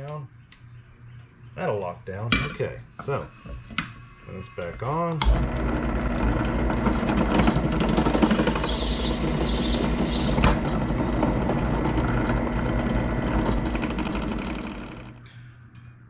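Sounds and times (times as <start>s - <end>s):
drill press motor humming: 5.2s - 15.3s
drill bit hiss: 8.0s - 10.5s.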